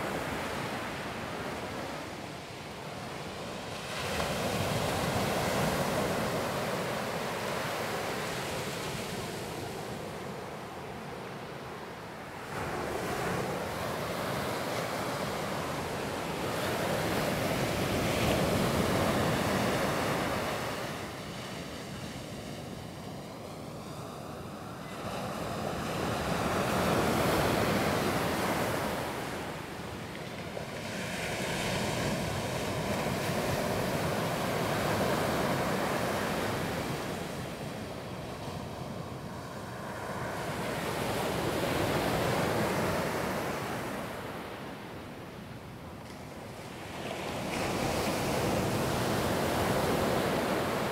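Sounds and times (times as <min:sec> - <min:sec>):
ocean surf breaking on beach: 0:00.0 - 0:50.9.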